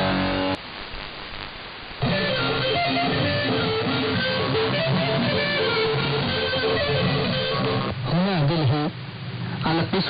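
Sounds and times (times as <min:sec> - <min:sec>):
radio hiss: 0:00.0 - 0:10.0
instrumental music over radio: 0:02.0 - 0:08.1.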